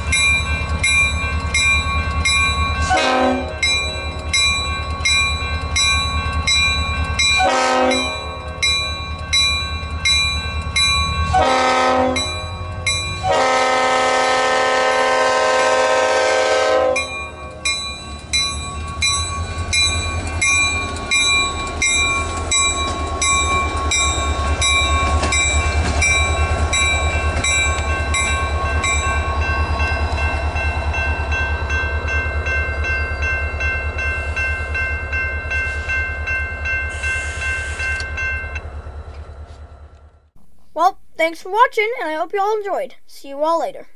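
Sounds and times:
crossing warning bell dinging: 0.0 - 40.3
passing train: 0.0 - 40.4
locomotive horn blasts: 2.8 - 3.6, 7.4 - 8.4, 11.3 - 12.4, 13.2 - 17.1.

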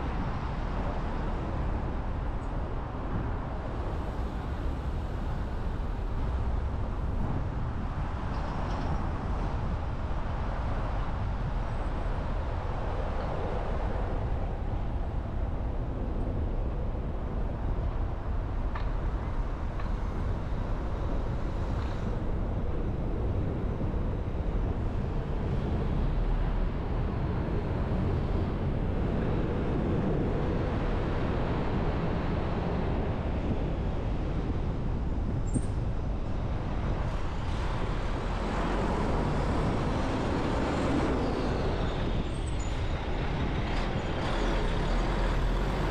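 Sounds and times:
city traffic rumble: 0.0 - 45.9.

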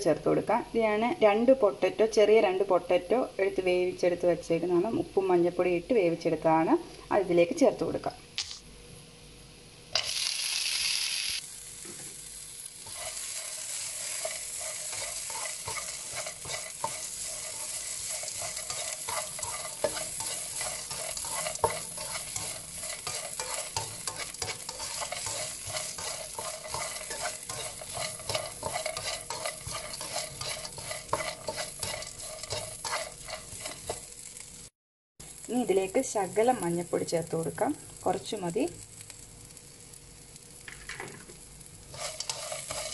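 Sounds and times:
food frying in hot oil: 9.9 - 42.9
spatula scraping a pan: 12.8 - 34.4, 41.9 - 42.9.

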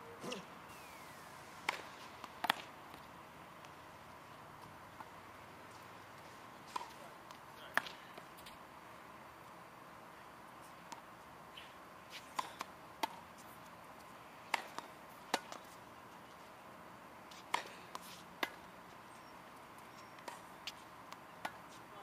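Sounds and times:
balls bouncing on hard court: 1.6 - 3.8
tennis balls struck by racket: 1.6 - 8.6, 10.8 - 15.8, 17.3 - 18.8, 19.8 - 21.8.

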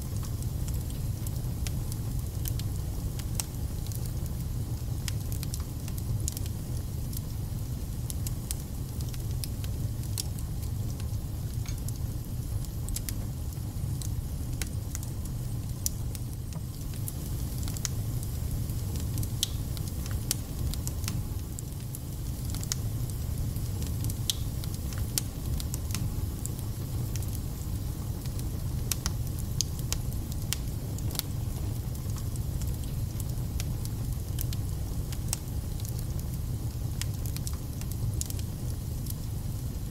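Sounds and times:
fire crackling and popping: 0.0 - 39.9
fire rumbling in fireplace: 0.0 - 39.9.

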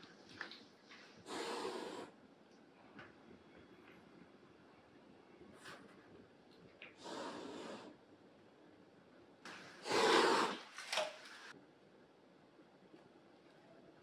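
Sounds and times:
cat hissing: 1.2 - 2.2, 9.8 - 10.7.

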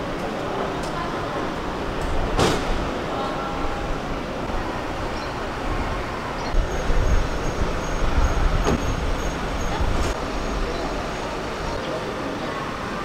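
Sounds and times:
people moving with luggage: 0.0 - 12.1
idling and passing cars: 4.5 - 11.8.

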